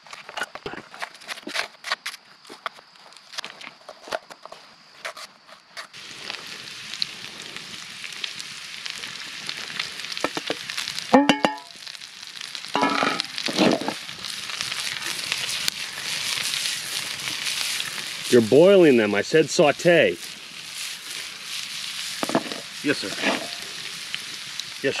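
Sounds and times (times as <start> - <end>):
food sizzling in a pan: 5.9 - 25.0
metal clanks against pan: 11.2 - 11.7, 12.8 - 13.3.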